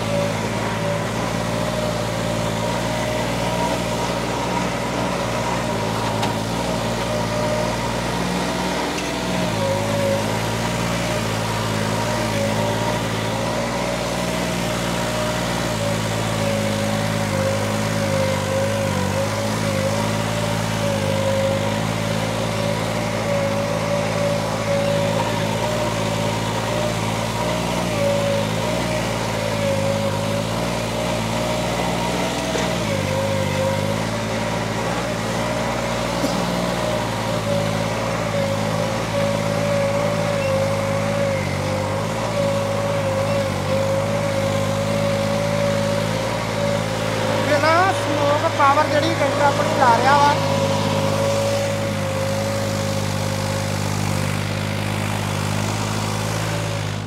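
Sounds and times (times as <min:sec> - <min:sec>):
tractor diesel engine under load: 0:00.0 - 0:57.0
wavering whine: 0:31.4 - 0:55.0.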